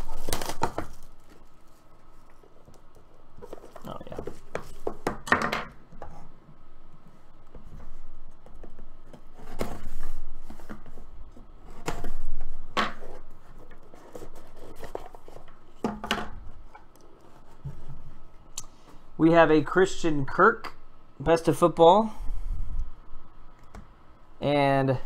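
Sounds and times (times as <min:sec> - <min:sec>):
cardboard scraping and tearing: 0:00.0 - 0:01.2.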